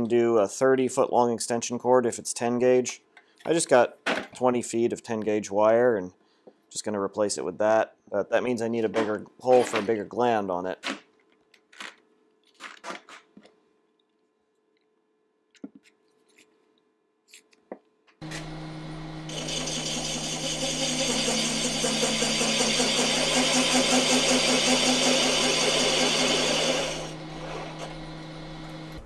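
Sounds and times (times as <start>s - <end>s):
cutter boring through sheet metal: 18.2s - 29.0s
milling machine motor humming: 18.2s - 29.0s.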